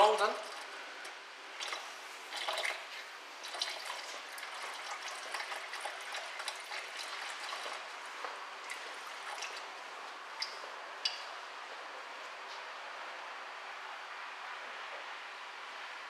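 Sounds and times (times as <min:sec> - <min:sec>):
fluid trickling into a pan: 0:01.5 - 0:10.6.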